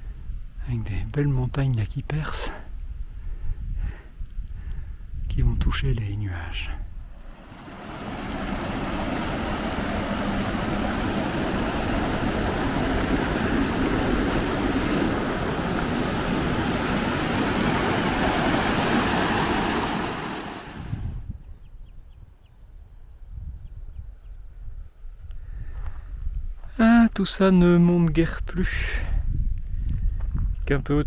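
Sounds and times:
wind buffeting microphone: 0:02.7 - 0:06.1, 0:06.8 - 0:26.7, 0:28.4 - 0:31.0.

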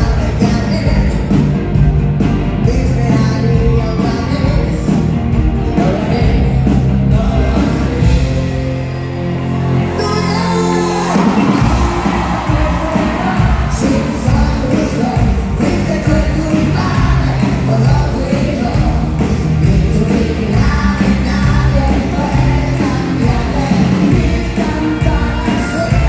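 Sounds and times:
pop-rock band with electric guitars: 0:00.0 - 0:26.0
person singing: 0:09.8 - 0:26.0.

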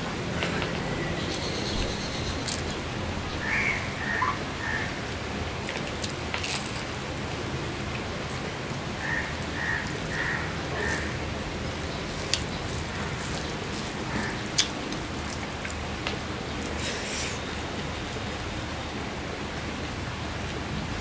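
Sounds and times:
steady hiss of rain: 0:00.0 - 0:21.0
chewing and wet mouth clicks: 0:14.5 - 0:15.8.

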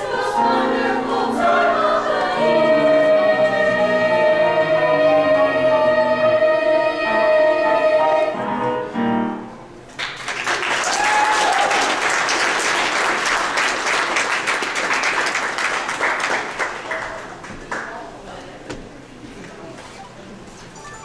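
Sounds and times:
girls' choir singing: 0:00.0 - 0:08.8
audience applause: 0:10.0 - 0:18.0.

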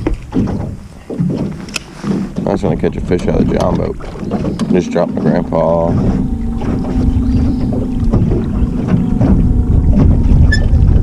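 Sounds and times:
wind rumbling on microphone: 0:00.0 - 0:11.0
electric boat motor hum: 0:04.1 - 0:11.0.

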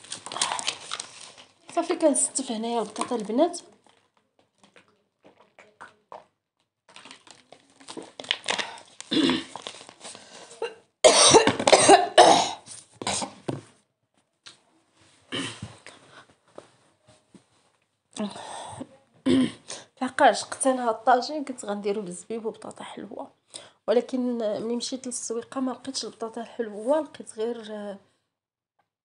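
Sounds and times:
woman coughing: 0:10.6 - 0:13.4, 0:19.2 - 0:19.7.

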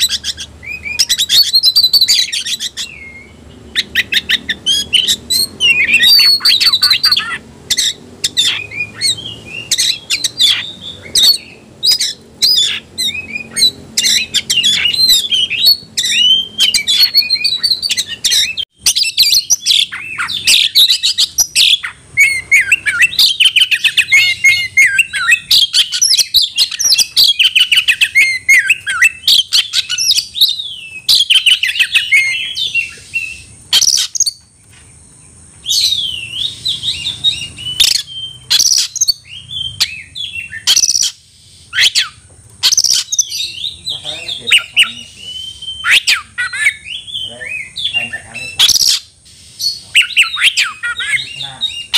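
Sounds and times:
songbird singing whistles and chatter: 0:00.0 - 0:34.8, 0:35.6 - 0:51.9.

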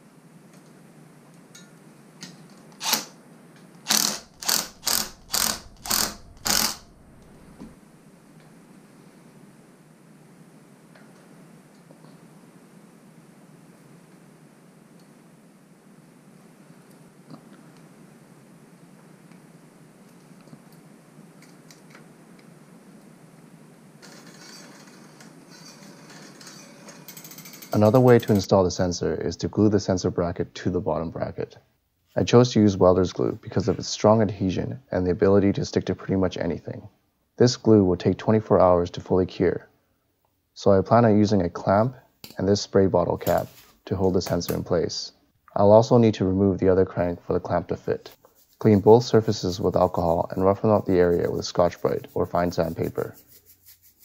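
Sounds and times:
power driver trigger bursts: 0:02.8 - 0:03.1, 0:03.8 - 0:06.9.

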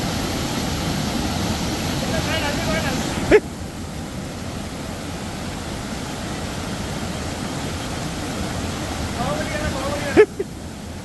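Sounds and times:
waterfall rushing: 0:00.0 - 0:11.0.

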